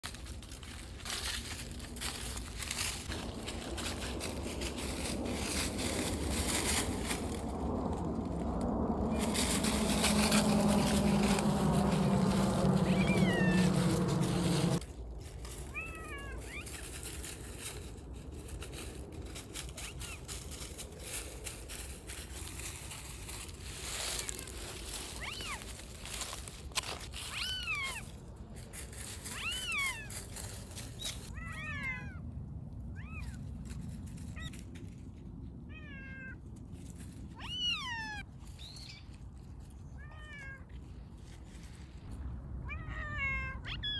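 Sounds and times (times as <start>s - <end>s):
paws crunching dry leaves: 0.0s - 32.1s, 32.9s - 35.3s, 36.4s - 42.6s
loud steady noise: 9.0s - 14.8s
cats meowing: 12.8s - 14.8s, 25.2s - 25.6s, 27.2s - 28.0s, 29.3s - 30.1s, 37.4s - 38.2s, 42.6s - 43.9s.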